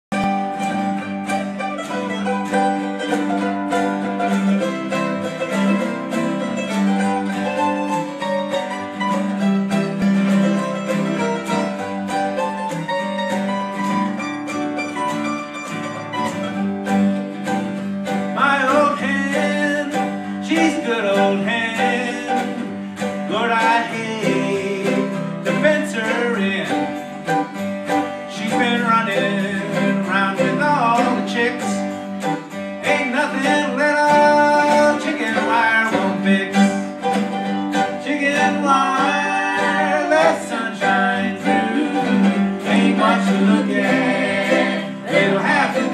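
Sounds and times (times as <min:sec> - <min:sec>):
acoustic guitar: 0:00.0 - 0:45.9
upright bass: 0:00.0 - 0:45.9
lap steel guitar: 0:00.1 - 0:45.9
man singing: 0:18.3 - 0:27.0, 0:28.3 - 0:31.9, 0:32.8 - 0:37.1, 0:37.8 - 0:45.9.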